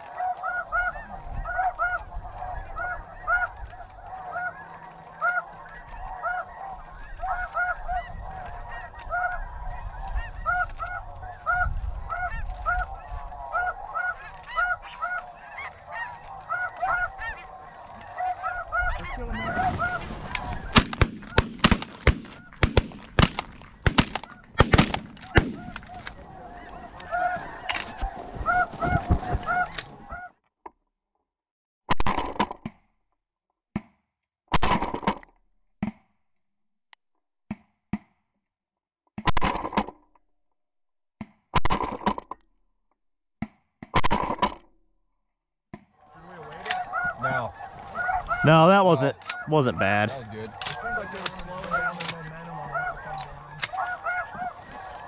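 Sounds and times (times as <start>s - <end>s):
geese honking: 0.0s - 30.3s, 46.0s - 55.0s
sharp loud cracks: 20.7s - 26.1s.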